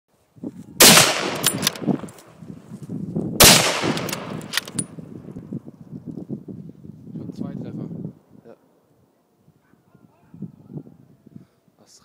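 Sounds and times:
gunshot: 0.8s - 1.8s, 3.4s - 4.5s
gunshot echo: 0.8s - 2.0s, 3.4s - 4.6s.

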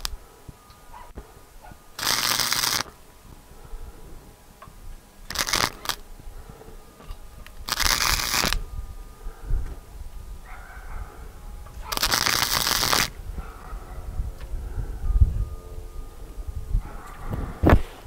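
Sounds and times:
welding arc crackling: 0.0s - 8.8s, 11.3s - 13.4s.

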